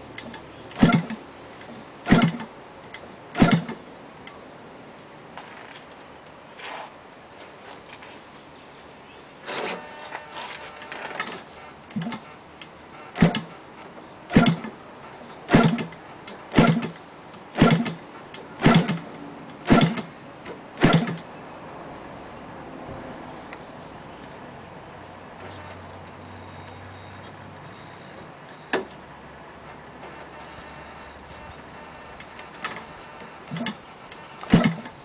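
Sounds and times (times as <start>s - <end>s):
engine turning over without starting: 0.2s - 2.5s, 3.3s - 3.8s, 9.5s - 12.3s, 13.1s - 13.6s, 14.3s - 14.8s, 15.5s - 18.0s, 18.6s - 20.1s, 20.8s - 21.3s, 32.2s - 35.0s.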